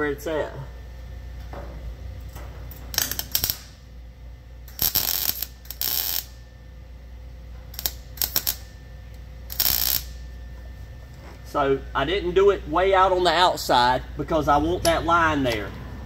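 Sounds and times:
welding arc bursts: 2.9 - 3.9, 4.7 - 6.4, 7.7 - 8.8, 9.5 - 10.3.

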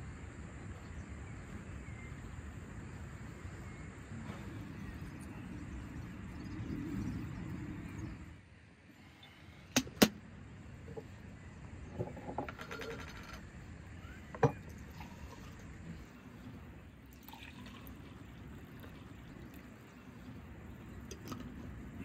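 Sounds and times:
drink pouring into glasses: 17.1 - 20.1.

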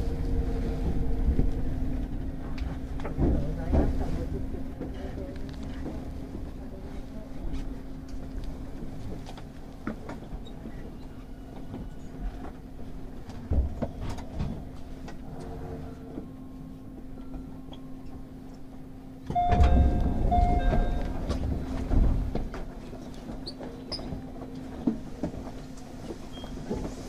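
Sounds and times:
heavy low rumble with whistling tones: 0.0 - 9.1, 19.3 - 27.0
electric train humming: 0.0 - 13.5, 14.6 - 27.0.

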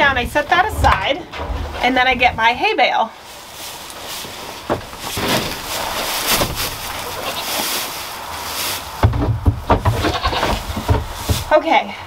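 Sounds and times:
dry hay rustling: 1.8 - 11.6
hay bale thumping down: 3.7 - 7.9, 8.6 - 11.6.

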